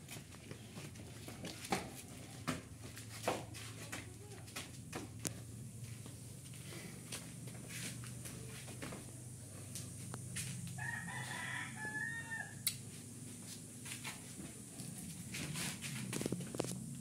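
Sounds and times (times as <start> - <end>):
rooster crowing: 10.7 - 12.7.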